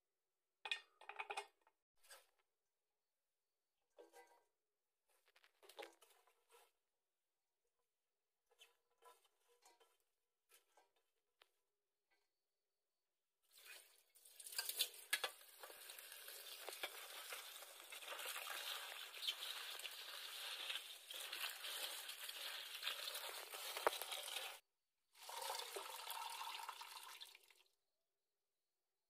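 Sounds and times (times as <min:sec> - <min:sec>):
water splashing into steel bowl: 0:13.5 - 0:24.6, 0:25.2 - 0:27.7.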